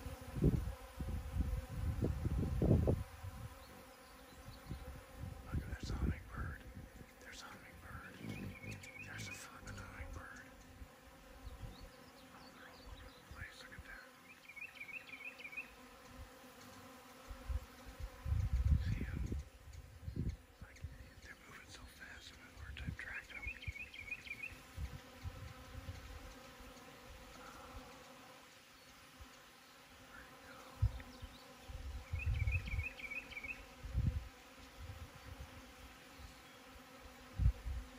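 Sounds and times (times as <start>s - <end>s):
bees buzzing: 0.0s - 37.9s
birds chirping: 3.5s - 33.7s, 36.0s - 36.8s
low rumbles on microphone: 4.6s - 7.0s, 7.7s - 10.2s, 18.2s - 21.2s
high bird chirps: 8.2s - 9.6s.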